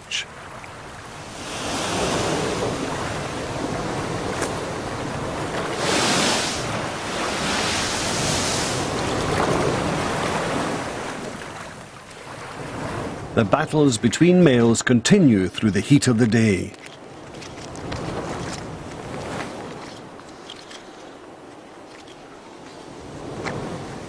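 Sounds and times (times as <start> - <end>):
surf breaking on rocks: 0.5 - 13.4.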